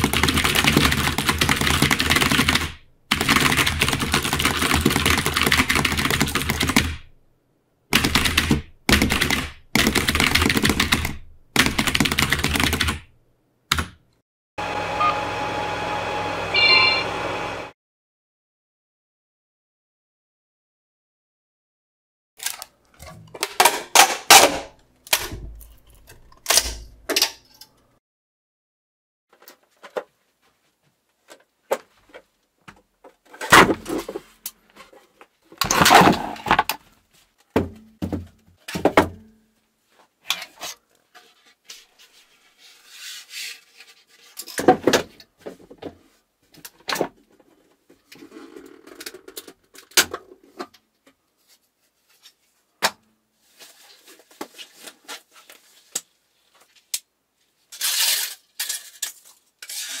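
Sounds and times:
plastic pieces knocking and clacking: 0:22.4 - 0:27.5.

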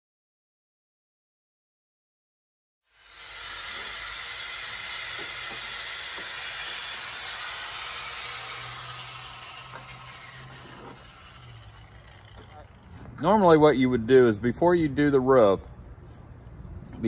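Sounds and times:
abrasive wheel grinding metal: 0:02.9 - 0:13.3.

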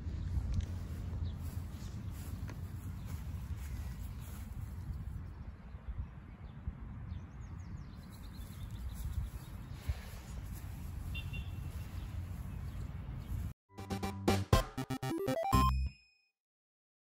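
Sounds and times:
low wind rumble on microphone: 0:00.0 - 0:13.5.

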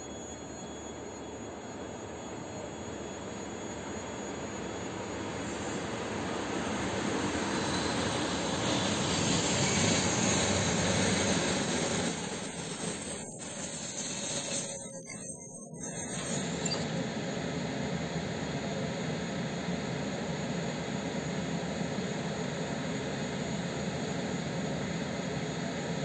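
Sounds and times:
electric train passing: 0:00.0 - 0:15.1.

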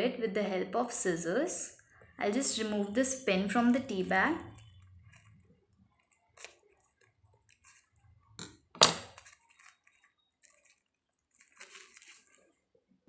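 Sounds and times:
paper rustling: 0:04.5 - 0:08.0, 0:09.1 - 0:12.7.

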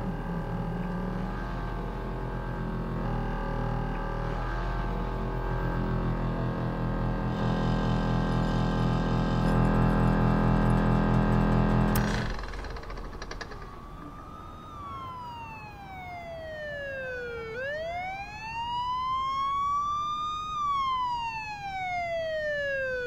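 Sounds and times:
siren wailing: 0:09.6 - 0:23.0.

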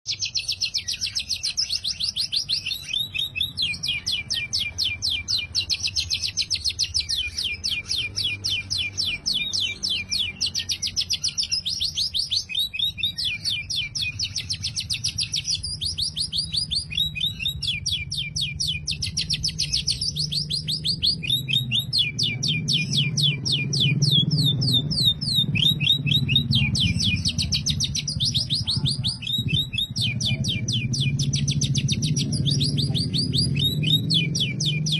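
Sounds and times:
bird singing rapid trills: 0:00.1 - 0:34.9.

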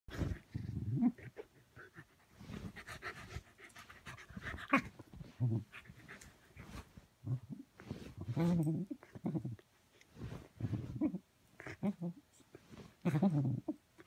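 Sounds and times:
dog panting: 0:01.4 - 0:06.8
fabric rustling: 0:10.1 - 0:11.1.

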